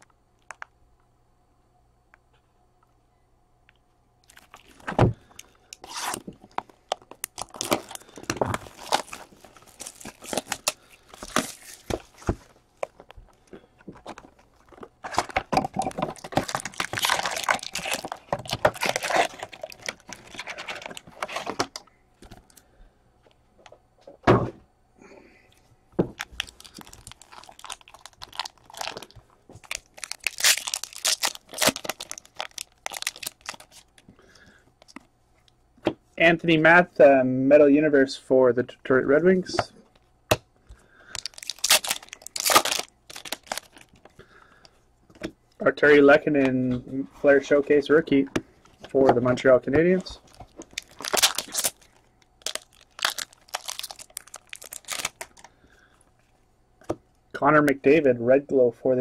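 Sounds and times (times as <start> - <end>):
plastic wrap crinkling and tearing: 4.2 - 21.8, 26.2 - 34.1, 41.1 - 44.1, 50.0 - 55.6.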